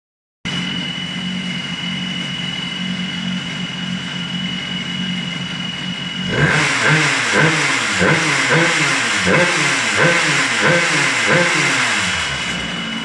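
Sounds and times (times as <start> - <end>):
high-pitched whine: 0.5 - 13.0
two-stroke engine idling: 0.5 - 13.0.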